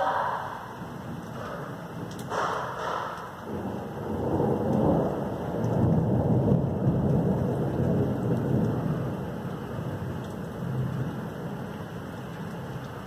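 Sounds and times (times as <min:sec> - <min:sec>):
thunder rumbling: 0:00.0 - 0:12.8.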